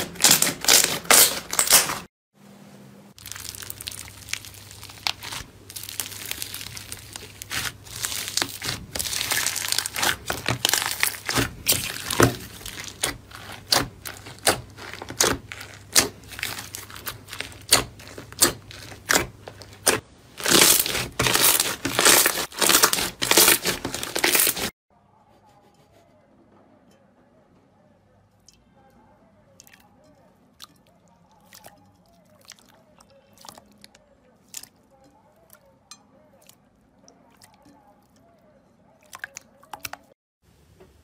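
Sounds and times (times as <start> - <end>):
crunchy slime squishing: 0.0 - 2.1, 3.2 - 24.8, 31.3 - 35.7.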